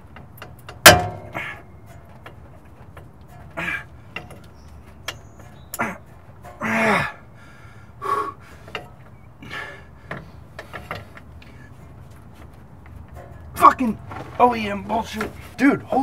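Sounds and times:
man grunting and gasping: 6.6 - 7.4.

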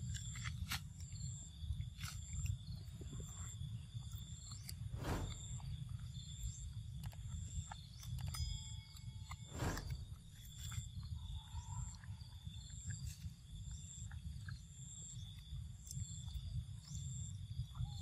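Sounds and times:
low rumble: 4.8 - 5.8, 9.4 - 10.3.

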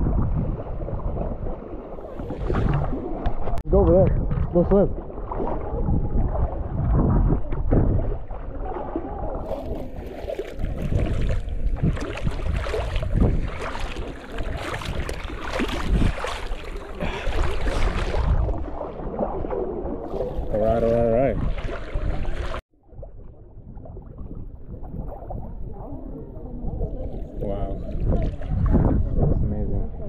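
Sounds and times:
seawater sloshing and splashing: 0.0 - 3.6, 4.3 - 22.6, 26.9 - 29.2.

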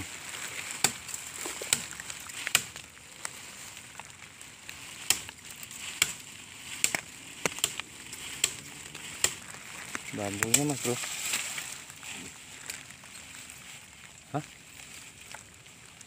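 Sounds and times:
machete chopping dry bamboo: 0.6 - 2.9, 4.8 - 11.5.

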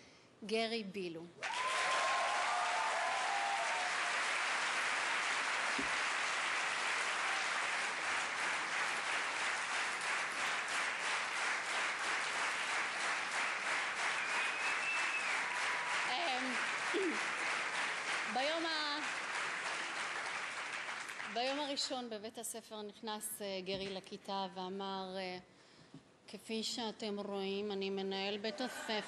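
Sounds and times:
audience applauding: 1.4 - 21.7.

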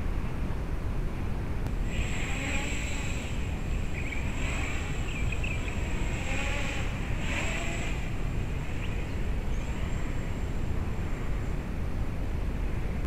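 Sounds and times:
wind rumbling on microphone: 0.0 - 13.0
quadcopter motors whining: 1.7 - 11.5.

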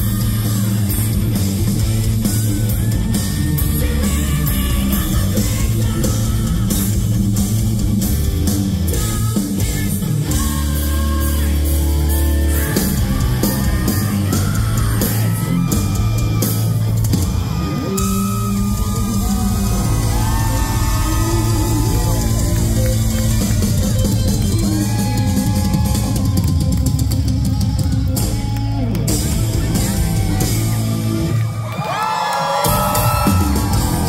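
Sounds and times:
man singing lead vocals: 0.0 - 1.2, 2.8 - 7.2, 8.9 - 16.1
bass guitar: 0.0 - 34.0
drums: 0.0 - 34.0
electric guitar: 0.0 - 34.0.

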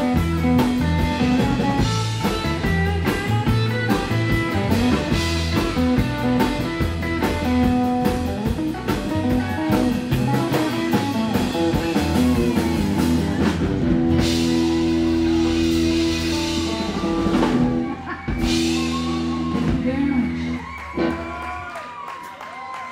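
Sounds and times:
live rockabilly band playing: 0.0 - 22.9.

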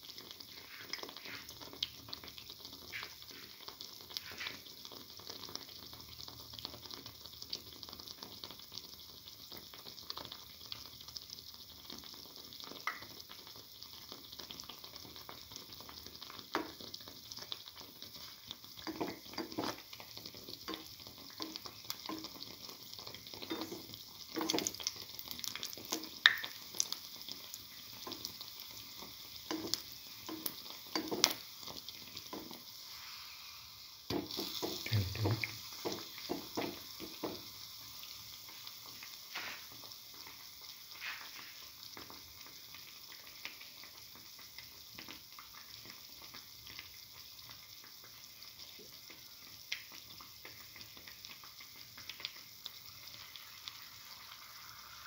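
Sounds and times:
oil sizzling with pops and crackles: 0.0 - 55.0
spatula tapping and scraping pan: 18.8 - 19.8, 23.4 - 24.7, 29.5 - 31.4, 34.1 - 37.5.

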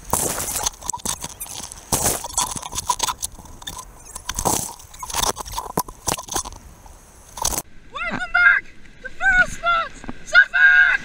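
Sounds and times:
water splashing against camera: 0.0 - 8.4.

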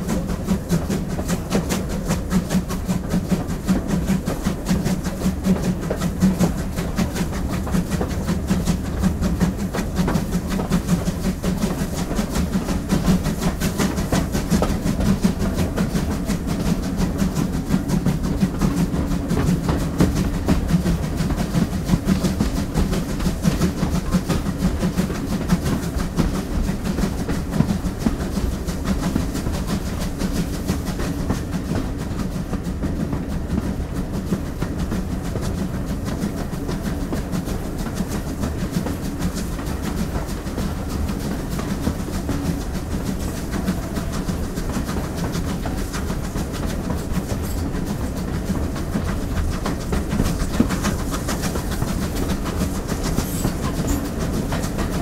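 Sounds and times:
steam locomotive running: 0.0 - 55.0.

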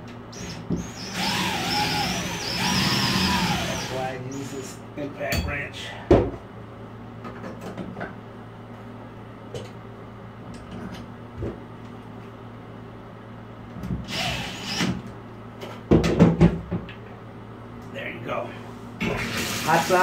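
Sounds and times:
cordless impact wrench bursts: 14.1 - 14.9.

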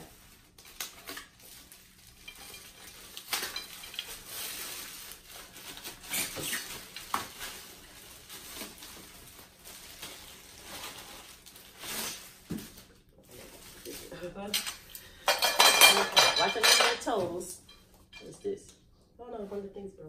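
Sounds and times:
bubble wrap snapping: 0.0 - 14.1
plastic packaging crinkling: 0.0 - 14.2.

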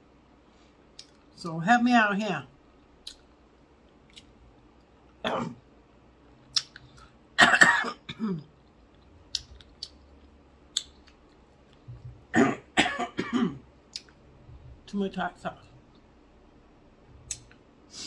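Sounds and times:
woman coughing: 5.2 - 5.6, 7.4 - 8.5, 12.3 - 13.6
mouth clicks from eating: 6.5 - 7.1, 17.3 - 17.6.

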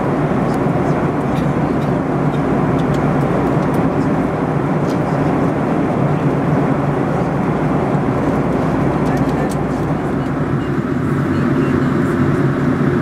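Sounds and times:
airliner cabin drone: 0.0 - 13.0.

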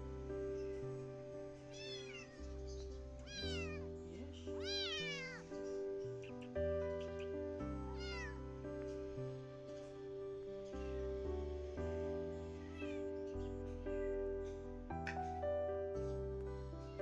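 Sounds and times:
soft background music: 0.0 - 17.0
kitten meowing: 1.7 - 4.0, 4.6 - 5.6, 6.2 - 8.6, 12.6 - 13.2.

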